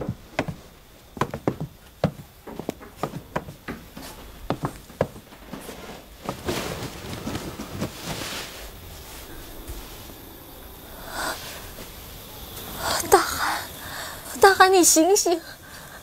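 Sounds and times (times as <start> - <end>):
hard-soled footsteps clacking: 0.0 - 8.0
breathy rustling: 0.0 - 14.4.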